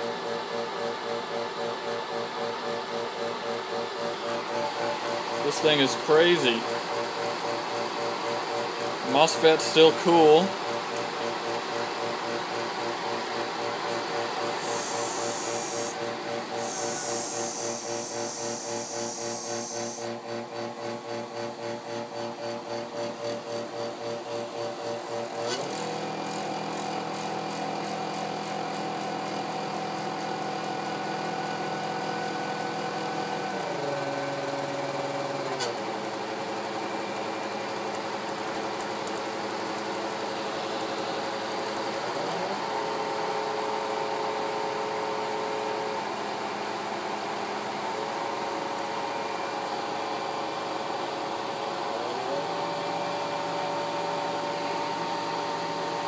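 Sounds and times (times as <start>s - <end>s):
electric motor humming and whining: 12.8s - 20.3s, 23.6s - 37.5s, 39.1s - 46.1s, 49.0s - 56.0s.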